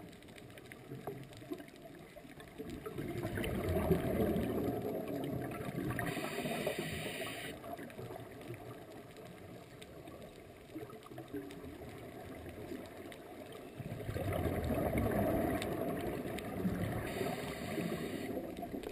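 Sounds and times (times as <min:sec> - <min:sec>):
underwater exhaled breath bubbling: 0:02.8 - 0:07.7, 0:13.8 - 0:18.9.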